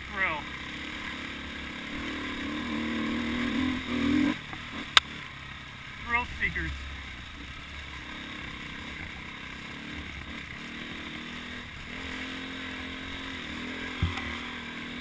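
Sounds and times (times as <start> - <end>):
dirt bike engine running: 0.0 - 15.0
sharp thump: 14.0 - 14.4.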